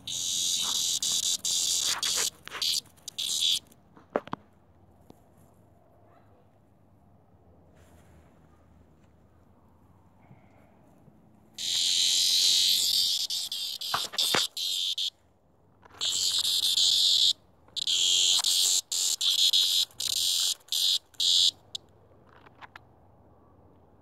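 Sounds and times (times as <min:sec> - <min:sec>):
cicada buzzing in harsh bursts: 0:00.0 - 0:03.7, 0:11.6 - 0:15.1, 0:16.0 - 0:21.8.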